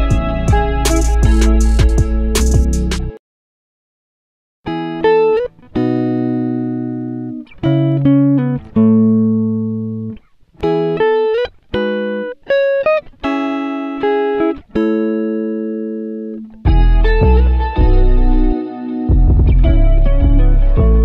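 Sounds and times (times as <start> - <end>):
plucked string chords: 0.0 - 3.2, 16.2 - 21.0.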